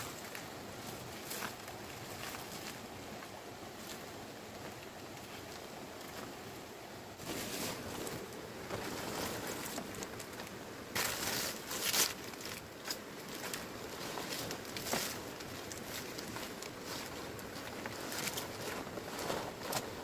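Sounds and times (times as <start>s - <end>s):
palm fronds rustling: 0.0s - 20.0s
steady background hiss: 0.0s - 20.0s.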